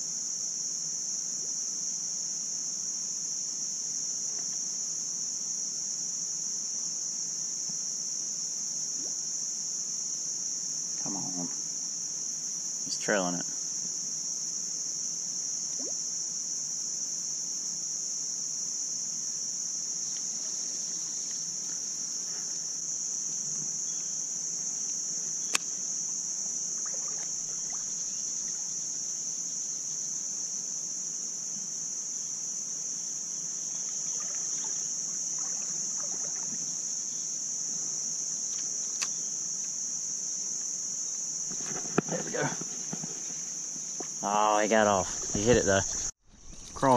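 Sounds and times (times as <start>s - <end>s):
insects droning: 0.0s - 46.9s
sharp click: 25.5s - 25.7s.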